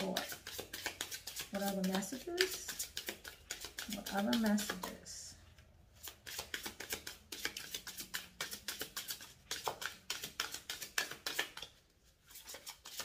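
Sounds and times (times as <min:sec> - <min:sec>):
cards being shuffled: 0:00.0 - 0:05.1, 0:06.0 - 0:13.0.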